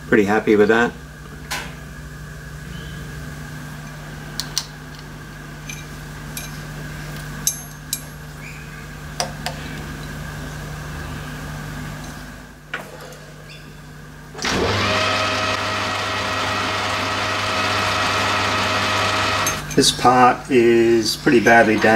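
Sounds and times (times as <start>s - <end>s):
machine hum: 14.0s - 19.7s.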